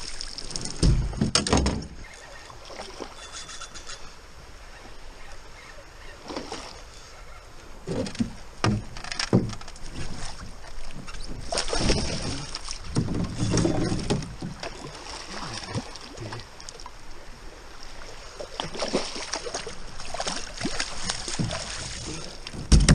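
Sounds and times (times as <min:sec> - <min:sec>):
fish thrashing and splashing: 0:11.3 - 0:16.2, 0:18.4 - 0:22.9
sharp knocks: 0:22.6 - 0:22.9.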